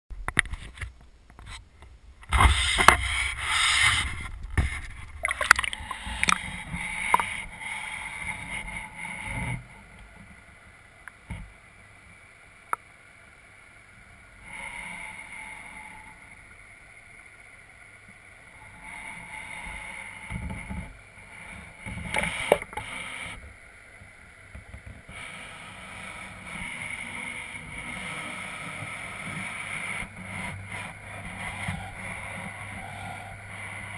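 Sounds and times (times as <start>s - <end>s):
underwater bubbling hiss: 2.3s - 12.8s, 13.7s - 33.9s
water sloshing: 3.9s - 7.5s.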